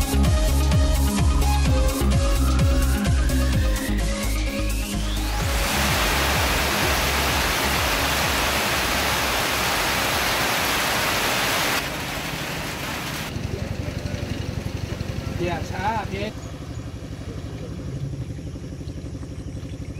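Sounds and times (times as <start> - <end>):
heavy rain streaming off roof: 5.4 - 13.3.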